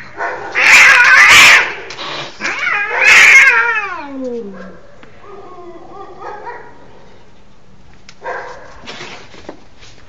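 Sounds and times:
cat screeching: 0.0s - 4.2s
cat yowling: 0.5s - 1.8s, 2.4s - 6.5s.

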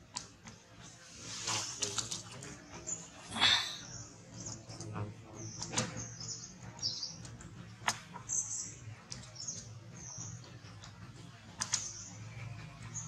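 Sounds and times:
birds chirping: 0.0s - 13.0s
sharp clicks: 11.6s - 12.0s.

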